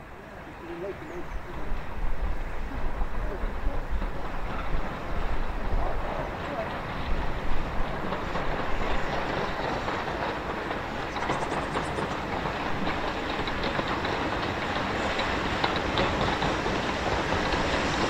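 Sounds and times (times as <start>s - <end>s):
train rumble: 0.0s - 18.0s
wheel clicks over rail joints: 6.3s - 18.0s.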